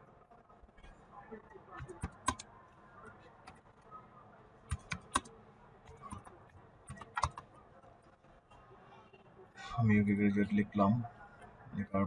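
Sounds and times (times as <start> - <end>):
keyboard key clicks: 1.8 - 2.5, 4.7 - 5.3, 6.9 - 7.5.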